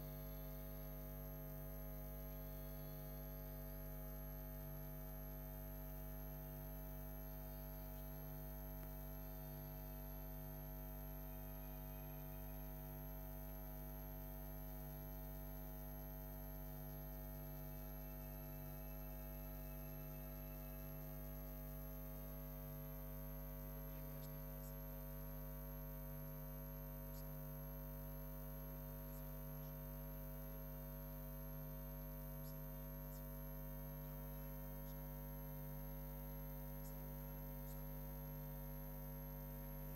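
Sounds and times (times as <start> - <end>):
faint high-pitched whine: 0.0 - 39.9
faint ticks: 23.9 - 25.0, 27.0 - 27.5, 29.0 - 29.9, 32.3 - 33.4, 34.0 - 35.4, 36.1 - 38.5.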